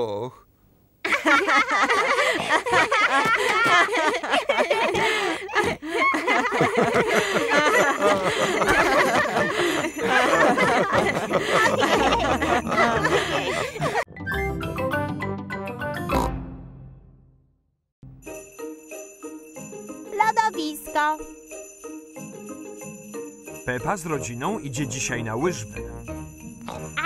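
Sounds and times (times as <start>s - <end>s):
cartoon voices laughing: 1.1s - 14.0s
cheerful theme tune: 6.2s - 27.0s.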